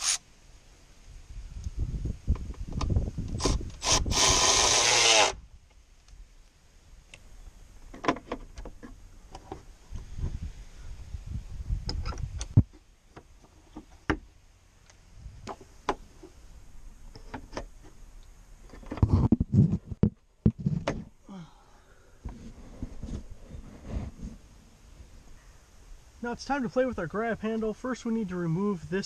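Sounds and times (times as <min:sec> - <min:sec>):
rubbing and low thumps: 0:08.1 - 0:14.3, 0:18.7 - 0:21.2, 0:22.2 - 0:24.5.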